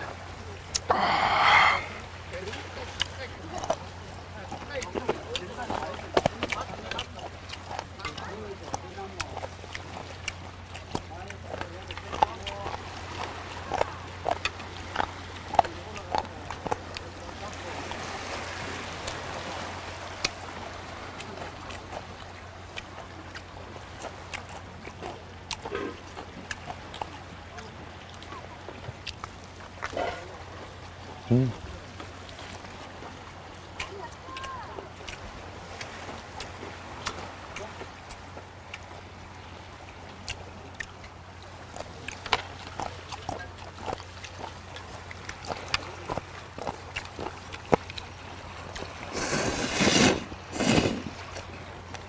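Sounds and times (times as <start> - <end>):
waves washing over rocks: 0.0 - 52.0
wind: 0.0 - 52.0
person chewing: 0.7 - 2.0, 6.5 - 17.1, 21.2 - 27.2, 29.0 - 30.4, 41.8 - 51.5.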